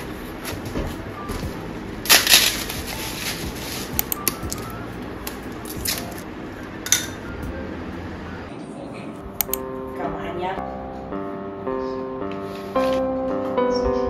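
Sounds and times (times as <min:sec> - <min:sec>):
rustling and handling noises: 0:00.2 - 0:04.7
clicks: 0:04.0 - 0:06.3, 0:09.4 - 0:09.7.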